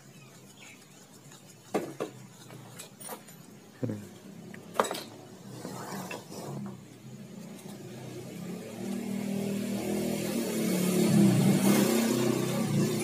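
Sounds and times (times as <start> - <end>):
engine running: 6.4 - 13.0.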